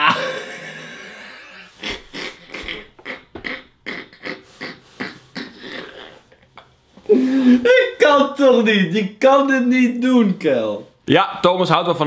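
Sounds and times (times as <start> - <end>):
man laughing hard: 0.0 - 6.2, 7.1 - 8.2.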